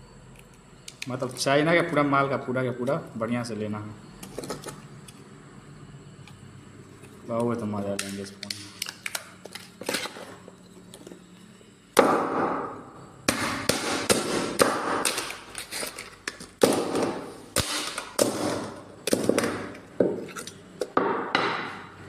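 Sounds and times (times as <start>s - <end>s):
hammer smashing phone: 16.6s - 19.7s.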